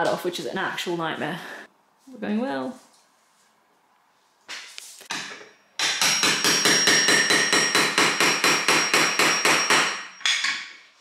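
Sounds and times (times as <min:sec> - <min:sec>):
hammer striking tool on tiles: 0:05.1 - 0:10.9.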